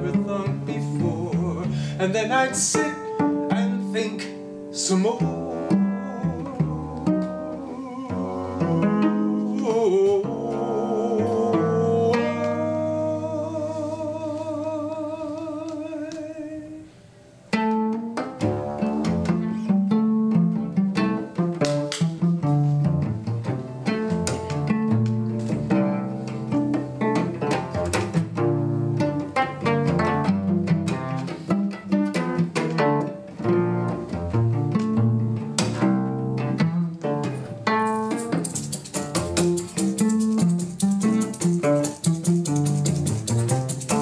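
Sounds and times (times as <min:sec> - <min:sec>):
solo cello playing fast notes: 0:04.8 - 0:15.5, 0:17.7 - 0:44.0
crisp percussive strokes: 0:37.8 - 0:44.0.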